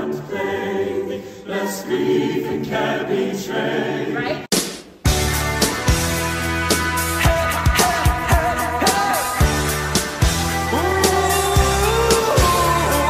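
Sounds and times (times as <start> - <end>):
mixed choir singing: 0.0 - 4.5, 10.3 - 13.0
rock song with strong bass: 5.1 - 13.0.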